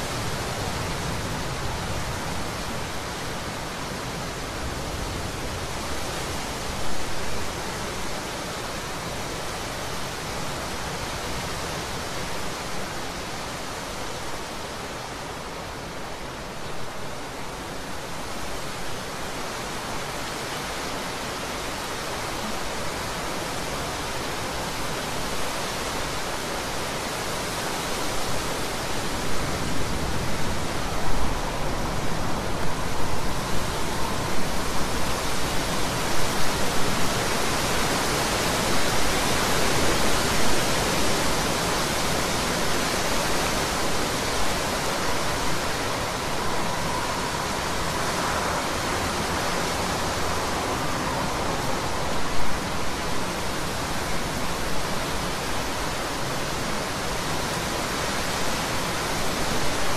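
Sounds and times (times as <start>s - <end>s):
heavy rain pouring: 0.0s - 59.9s.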